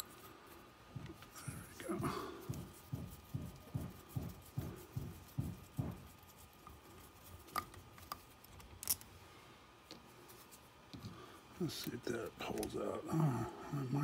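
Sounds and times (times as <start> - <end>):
screwdriver rubbing with each twist: 0.0 - 9.0.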